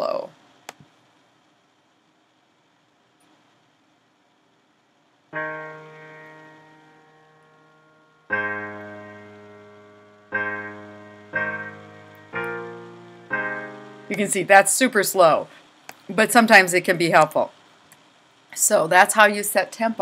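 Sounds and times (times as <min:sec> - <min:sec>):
piano chords: 0:05.3 - 0:15.5.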